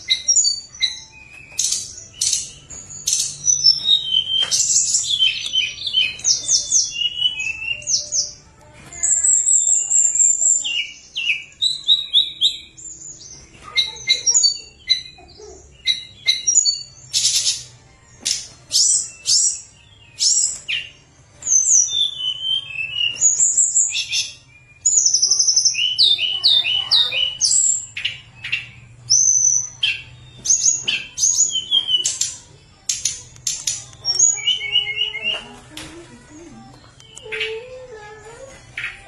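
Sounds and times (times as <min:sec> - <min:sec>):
songbird singing: 0:00.0 - 0:39.0.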